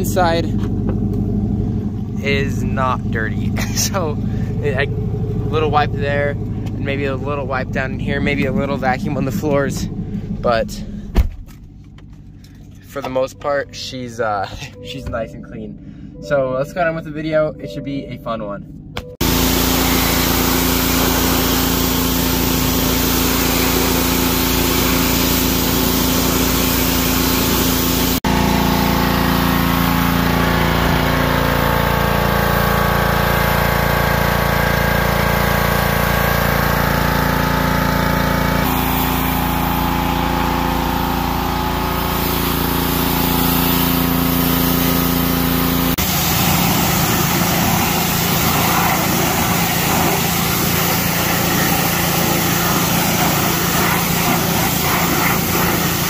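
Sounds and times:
small engine drone: 0.0s - 17.0s, 18.6s - 56.0s
high-pressure water jet hiss: 19.2s - 30.1s, 38.6s - 41.3s, 41.9s - 56.0s.

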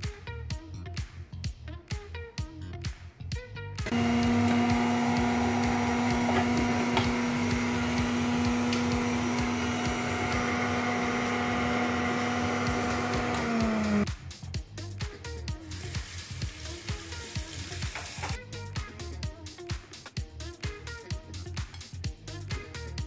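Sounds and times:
juicer motor humming: 3.9s - 14.0s.

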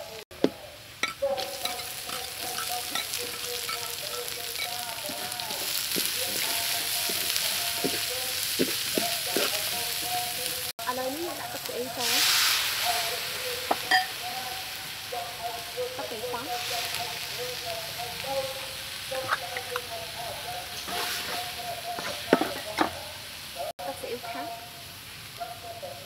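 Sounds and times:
food sizzling in hot oil: 0.0s - 26.0s
sauce sizzling in a hot wok: 0.0s - 26.0s
metal ladle scraping a wok: 20.8s - 22.9s.

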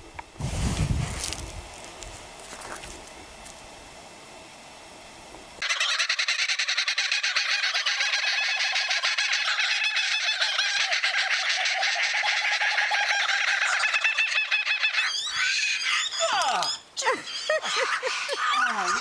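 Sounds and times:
kookaburras laughing: 5.6s - 19.0s.

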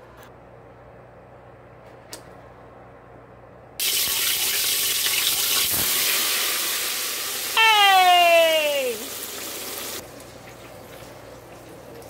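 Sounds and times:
oil bubbling hiss: 3.8s - 7.6s, 8.8s - 12.0s
potatoes sizzling in hot oil: 3.8s - 7.6s, 8.8s - 10.0s.

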